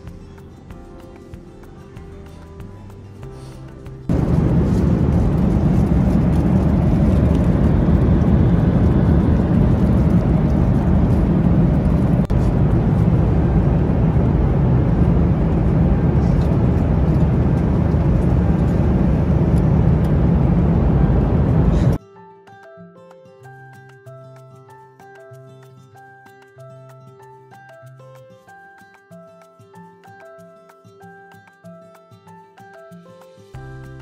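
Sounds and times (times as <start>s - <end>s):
airliner cabin roar: 4.1s - 22.0s.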